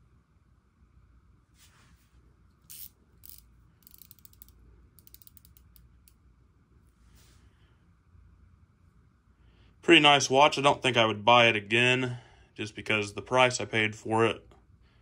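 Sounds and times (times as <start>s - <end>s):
soft rustle: 1.5s - 2.4s, 6.8s - 7.7s
wristwatch ratcheting clicks: 2.7s - 6.2s.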